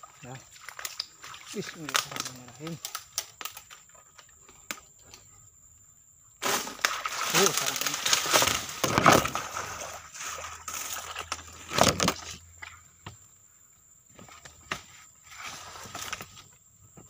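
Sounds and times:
footsteps crackling on leaves: 0.0s - 3.9s, 6.4s - 12.3s
rustling through dry leaves: 6.4s - 12.2s.

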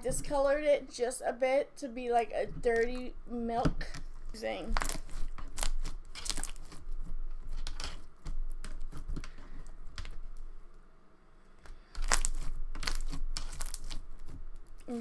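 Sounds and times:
slime crackling when squeezed: 4.6s - 6.8s, 11.9s - 15.0s.

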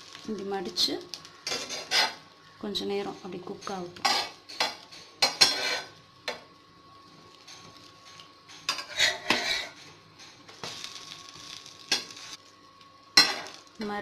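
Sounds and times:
spatula scraping frying pan: 1.4s - 2.2s, 4.0s - 6.0s, 8.6s - 10.0s.

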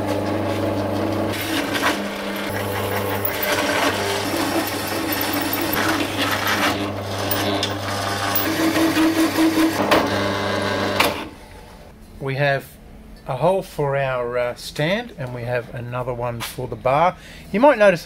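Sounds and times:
drill motor hum: 1.3s - 11.0s
hole saw rasping through steel: 1.4s - 9.6s.

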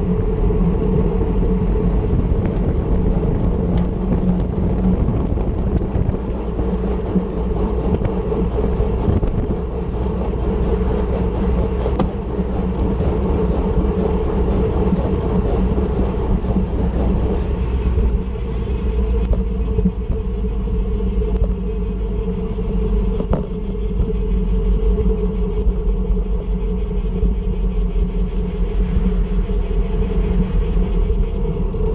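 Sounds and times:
wind rushing over microphone: 0.0s - 21.7s
tyre and road rumble: 0.0s - 24.9s.

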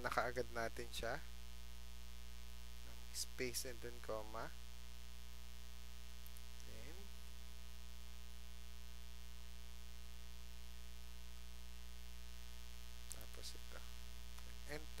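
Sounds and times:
electrical mains hum: 0.0s - 15.0s.

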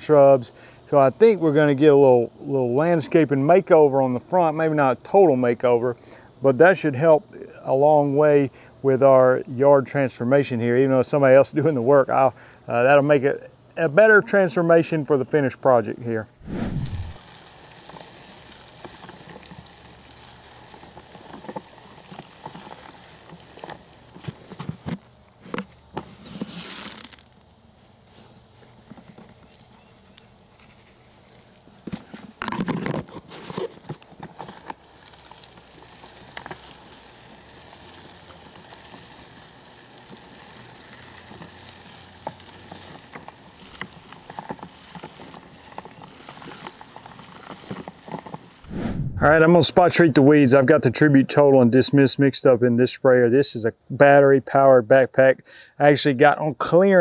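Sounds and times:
granules pattering on lawn: 16.4s - 25.2s, 29.1s - 49.4s.

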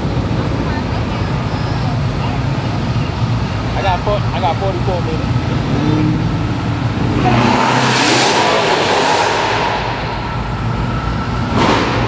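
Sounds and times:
car accelerating past: 5.4s - 12.0s.

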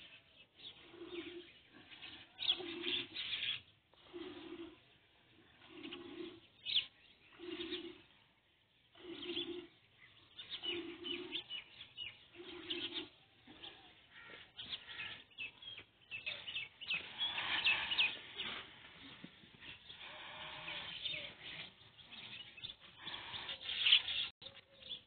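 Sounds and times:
small birds chirping: 0.0s - 25.0s
dove cooing: 2.3s - 4.8s, 5.6s - 8.1s, 9.0s - 9.7s, 10.4s - 14.3s.

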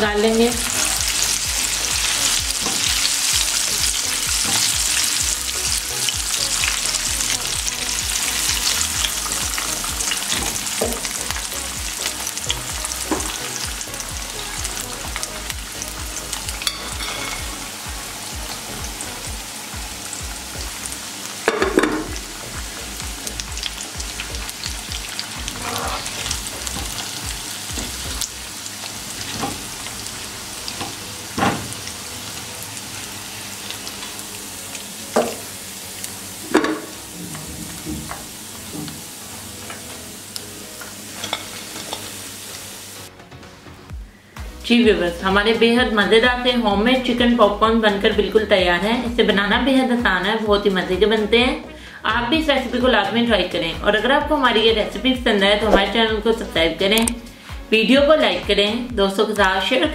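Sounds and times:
chicken deep-frying in oil: 0.2s - 43.0s
skimmer and spatula scraping pan: 16.6s - 17.8s, 25.1s - 27.2s.

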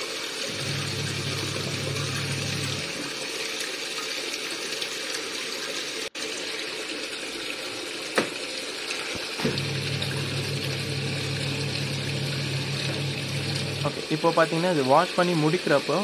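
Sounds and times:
water splashing in washing machine: 0.0s - 16.0s
washing machine motor humming: 0.4s - 3.2s, 9.1s - 15.1s.

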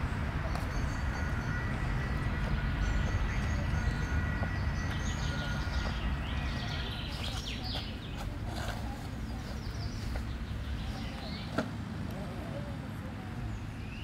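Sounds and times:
birds chirping: 0.0s - 11.7s
distant traffic rumble: 0.0s - 14.0s.

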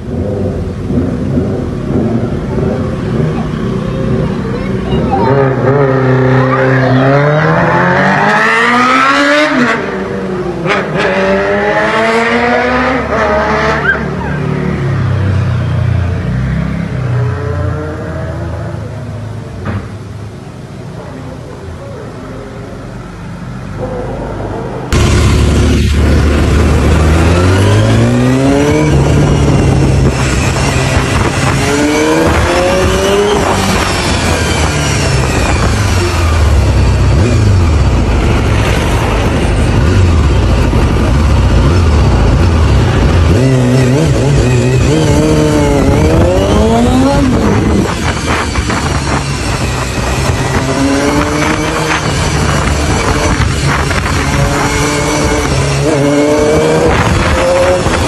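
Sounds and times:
motorcycle engine accelerating: 0.0s - 18.7s, 23.8s - 58.0s.

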